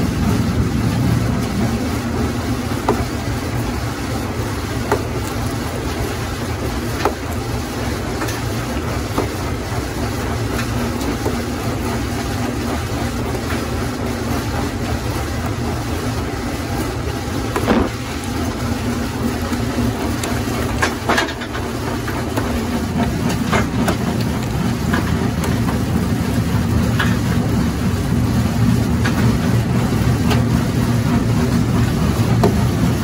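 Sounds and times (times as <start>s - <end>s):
rock crusher drone: 17.4s - 19.7s.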